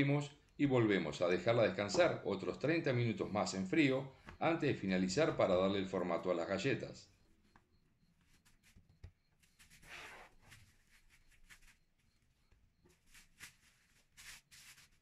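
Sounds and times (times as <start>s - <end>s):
cling film crinkling: 12.9s - 15.0s.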